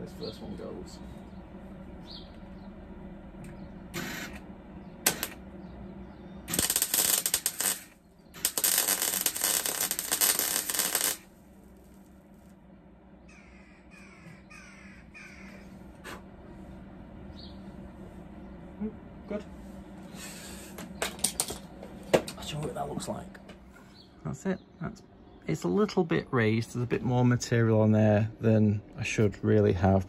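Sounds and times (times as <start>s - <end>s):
bird calling: 0.2s - 2.8s, 13.2s - 16.2s
welder crackling: 3.9s - 5.5s, 6.4s - 12.6s.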